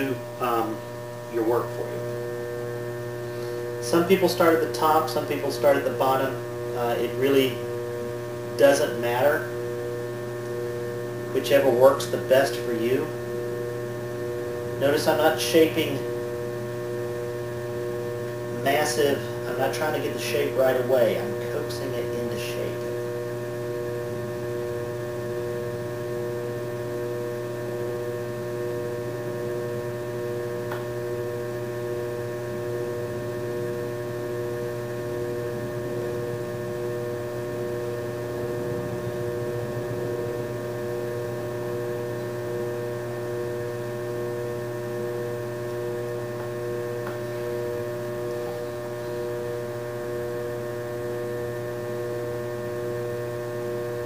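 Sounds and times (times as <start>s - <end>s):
potter's wheel motor hum: 0.0s - 54.0s.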